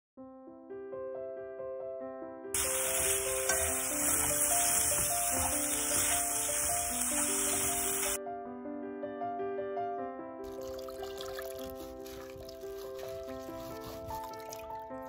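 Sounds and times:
piano music: 0.2 - 15.0
vegetables sizzling in oil: 2.6 - 8.2.

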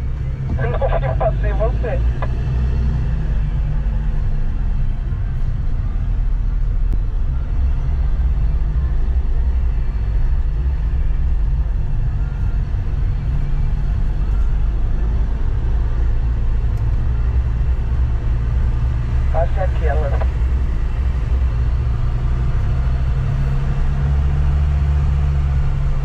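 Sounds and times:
vehicle engine and road rumble: 0.0 - 26.0.

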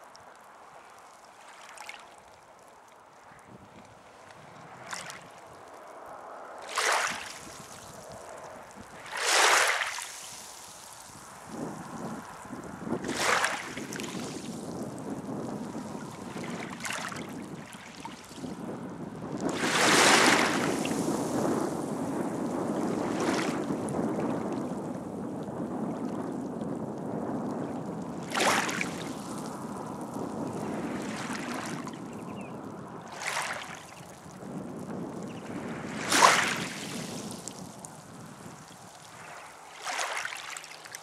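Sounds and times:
small waves lapping at shore: 0.0 - 18.6, 19.4 - 24.7, 28.0 - 34.4, 35.5 - 41.0
sharp wave splashes: 9.1 - 10.6, 36.0 - 37.0.

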